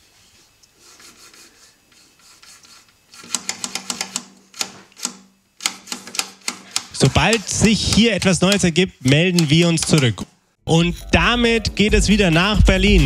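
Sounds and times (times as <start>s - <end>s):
sharp fader clicks: 3.3s - 10.3s
crossfader rubbing: 5.9s - 10.3s.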